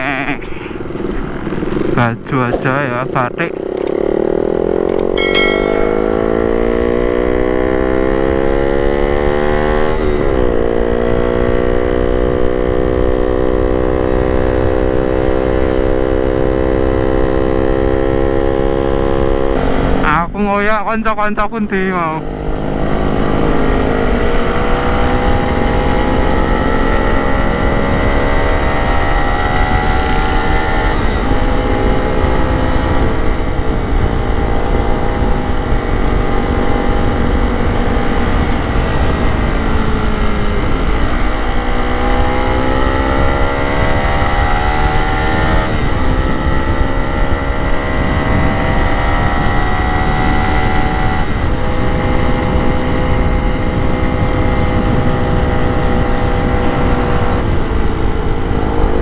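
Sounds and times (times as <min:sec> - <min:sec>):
motorcycle engine revving: 0:00.0 - 0:20.2, 0:22.0 - 0:59.0
wind rumble on microphone: 0:22.2 - 0:59.0.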